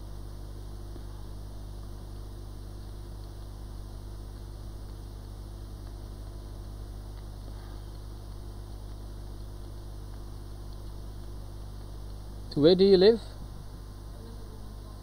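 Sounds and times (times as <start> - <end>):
low hum: 0.0 - 15.0
hot air blower hissing: 7.4 - 8.3.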